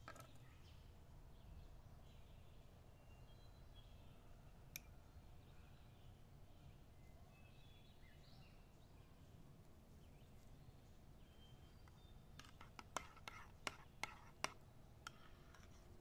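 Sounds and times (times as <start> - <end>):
distant bird chirps: 11.2 - 15.8.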